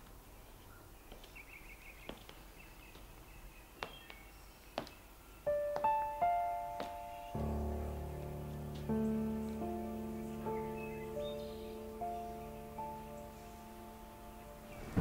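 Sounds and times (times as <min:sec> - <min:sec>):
faint bird chirps: 0:00.0 - 0:15.0
slow piano melody: 0:05.4 - 0:15.0.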